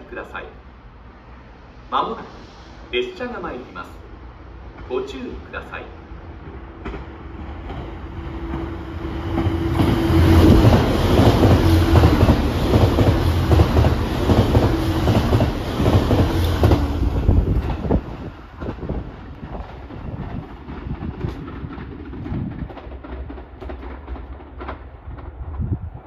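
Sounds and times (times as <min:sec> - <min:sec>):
train rumbling past: 0:00.0 - 0:26.0
wheels clacking over rail joints: 0:06.4 - 0:25.7.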